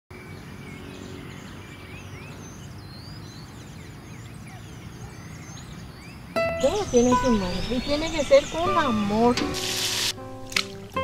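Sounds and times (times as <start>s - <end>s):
birds chirping: 0.1s - 10.9s.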